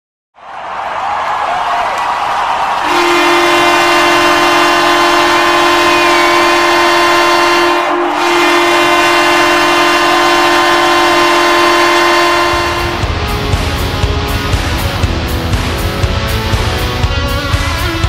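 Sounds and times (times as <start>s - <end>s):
goal horn low note: 2.8s - 14.0s.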